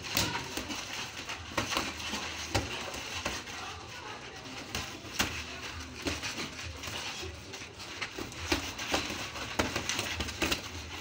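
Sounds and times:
boxing gloves smacking: 0.0 - 3.5, 8.0 - 11.0.

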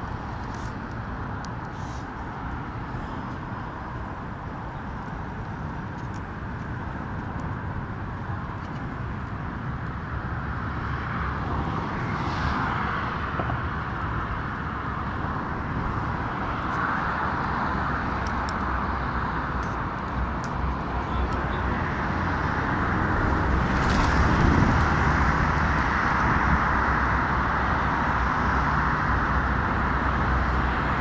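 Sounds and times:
road traffic noise: 0.0 - 31.0.

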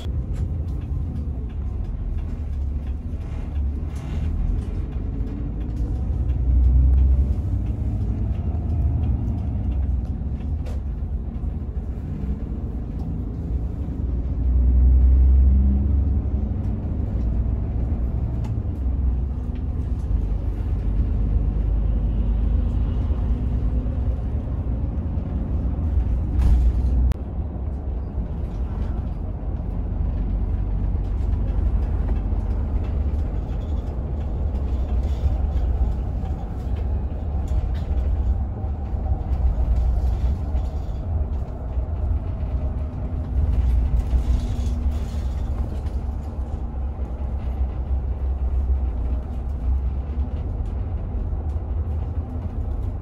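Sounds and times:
bus engine and road rumble: 0.0 - 53.0.

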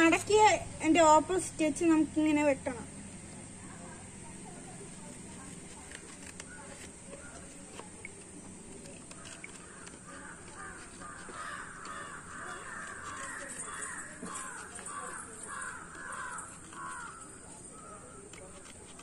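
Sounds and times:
crow cawing: 9.2 - 18.3.

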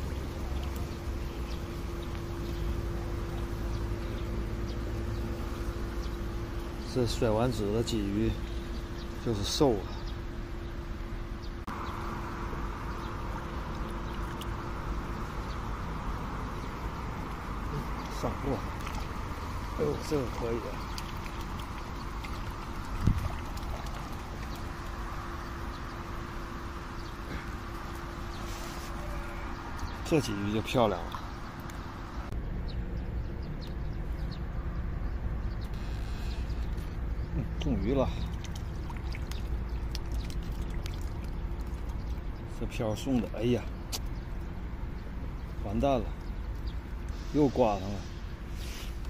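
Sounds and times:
faint steady hum: 0.0 - 32.4
steady low rumble: 0.0 - 48.6
bird chirps: 0.5 - 10.8.

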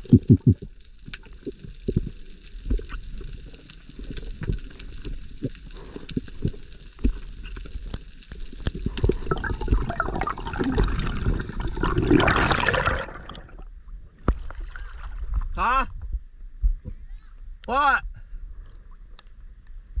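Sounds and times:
sharp clicks underwater: 0.0 - 13.6
low rumble of water: 0.0 - 15.6
rush of water: 8.6 - 13.6.

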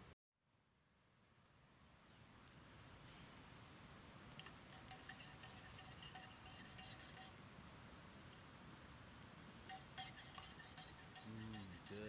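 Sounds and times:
thin high tones: 9.7 - 12.0.

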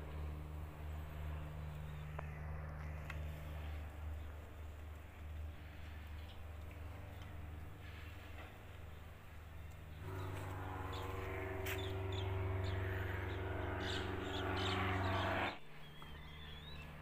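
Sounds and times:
machine-like drone: 0.0 - 17.0
steady droning hum: 0.0 - 17.0
birds chirping: 8.8 - 17.0.

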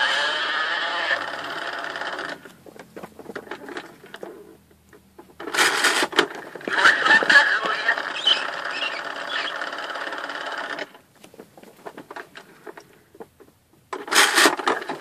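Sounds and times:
toy mechanism whirring: 0.0 - 2.4, 7.0 - 11.0, 14.0 - 15.0
toy animal sound playback: 6.7 - 10.9.

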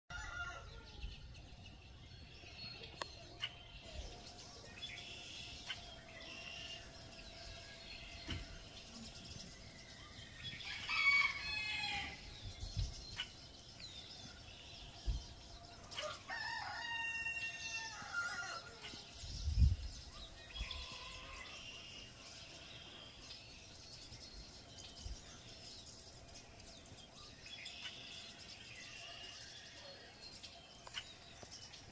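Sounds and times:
rooster crowing: 0.1 - 1.0, 10.6 - 12.3, 16.0 - 19.0
songbirds chirping: 0.1 - 31.9.

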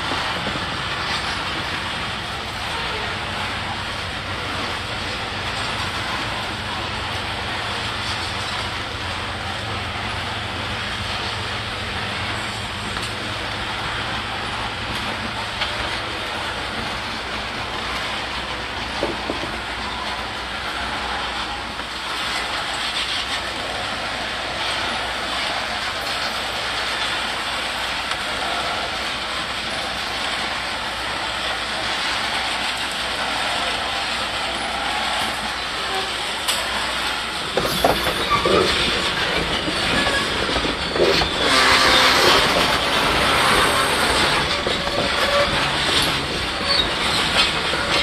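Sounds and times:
train car clank: 0.0 - 20.3, 21.0 - 48.0
train wheels rumbling on rail: 0.0 - 48.0.

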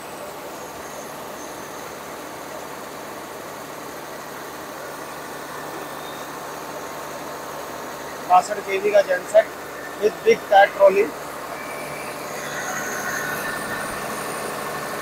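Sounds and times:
diesel generator running: 0.0 - 15.0.

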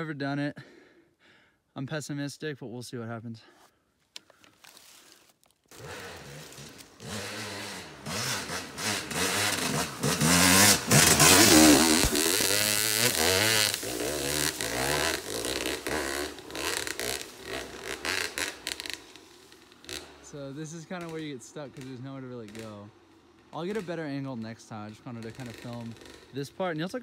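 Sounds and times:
dirt bike revving hard: 5.7 - 20.4, 22.5 - 23.8, 25.2 - 26.5.

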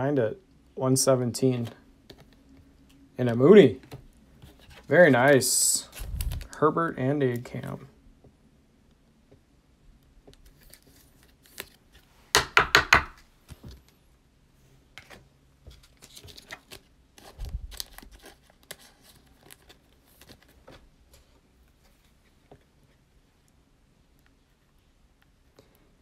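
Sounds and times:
trading cards handling: 3.7 - 6.6, 10.4 - 14.0, 14.9 - 22.2
foil wrapper crackling: 17.4 - 20.4.

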